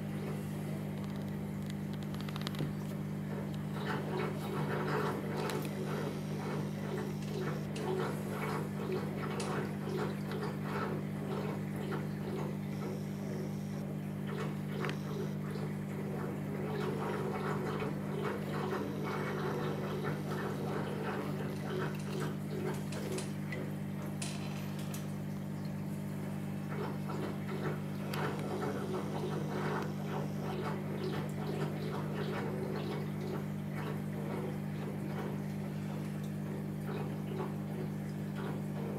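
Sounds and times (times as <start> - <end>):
aquarium pump humming: 0.0 - 38.9
water trickling and bubbling: 0.9 - 38.9
small irregular ticks: 1.0 - 2.8.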